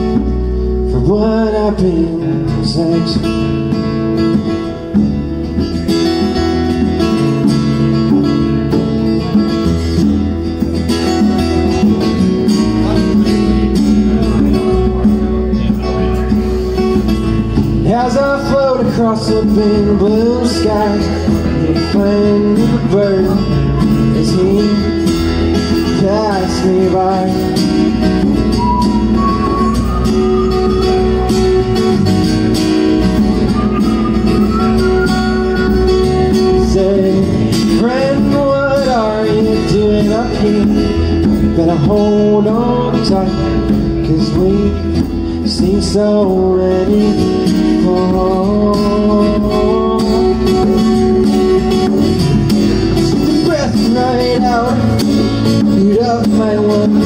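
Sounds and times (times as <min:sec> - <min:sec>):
bass line: 0:00.0 - 0:57.0
hand percussion: 0:00.0 - 0:57.0
strummed acoustic guitar: 0:00.0 - 0:57.0
person singing: 0:34.5 - 0:51.9.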